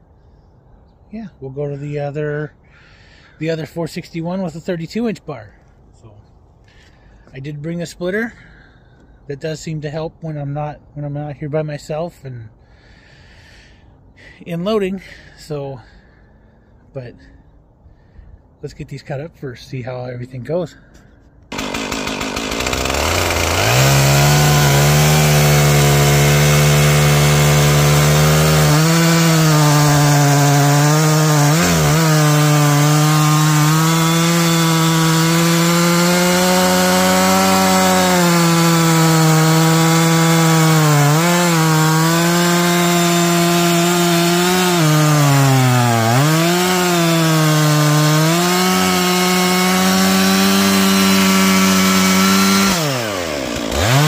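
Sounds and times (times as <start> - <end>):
chainsaw cutting through logs: 21.5 - 54.0.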